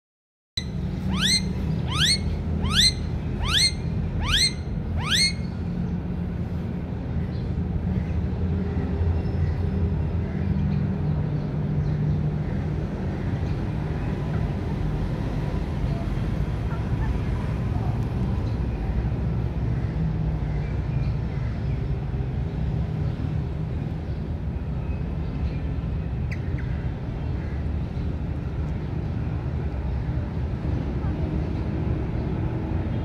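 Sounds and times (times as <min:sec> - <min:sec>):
parakeet shrill screeches: 0:00.6 - 0:05.5.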